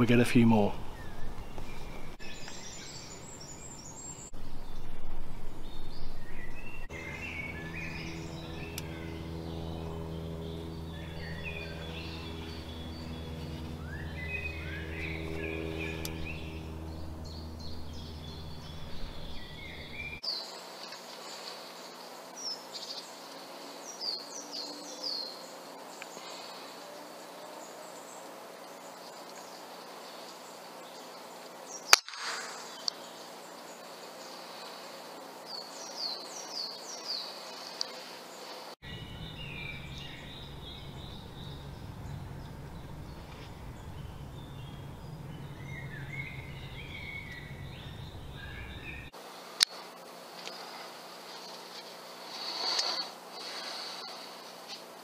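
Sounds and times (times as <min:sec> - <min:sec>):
birds chirping and singing: 0:00.0 - 0:04.9, 0:05.6 - 0:32.0, 0:32.6 - 0:49.1
air rifle shot: 0:31.9 - 0:32.7.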